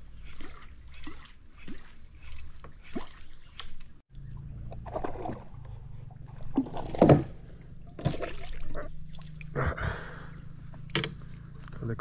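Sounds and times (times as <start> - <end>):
fish splashing in water: 0.0 - 4.0, 4.8 - 9.6.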